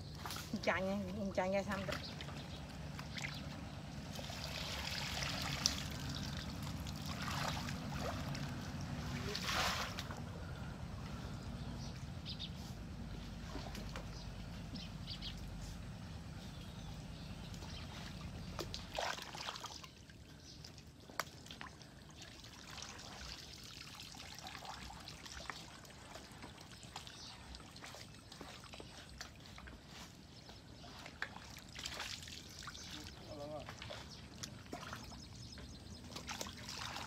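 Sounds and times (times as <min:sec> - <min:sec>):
water trickling and splashing: 0:00.0 - 0:16.5, 0:17.1 - 0:37.0.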